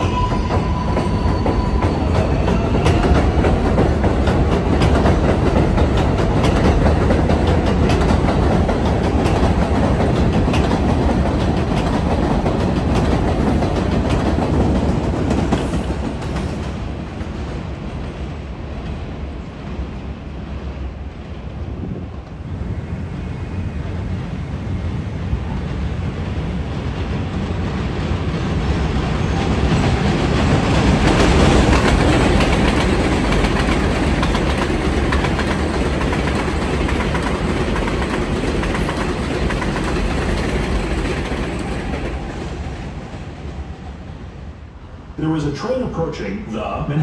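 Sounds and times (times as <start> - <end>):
train wheels clattering on rails: 0.0 - 19.0, 25.8 - 44.1.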